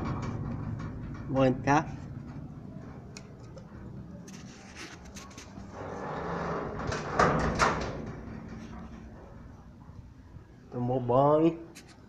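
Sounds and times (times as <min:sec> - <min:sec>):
metal gate clanks: 0:00.0 - 0:03.1, 0:05.6 - 0:09.8
metal gate scraping rattle: 0:00.0 - 0:03.1, 0:05.1 - 0:09.8
metal gate clicks: 0:05.8 - 0:09.2.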